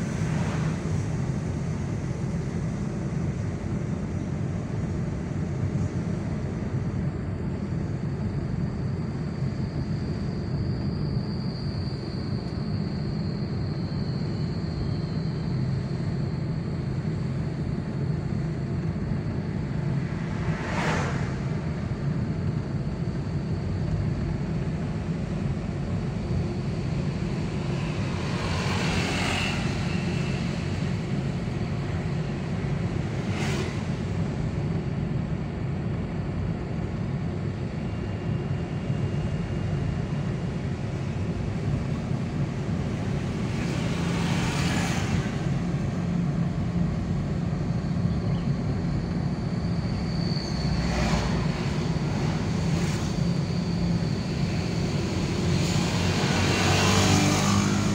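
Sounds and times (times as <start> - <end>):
engine and tyre rumble: 0.0 - 57.9
passing vehicles: 0.0 - 57.9.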